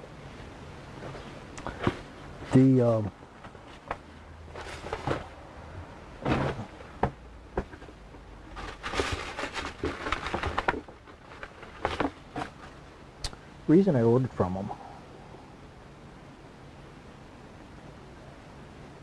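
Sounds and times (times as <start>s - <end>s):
rustling swishes: 0.9s - 5.5s, 8.4s - 12.9s.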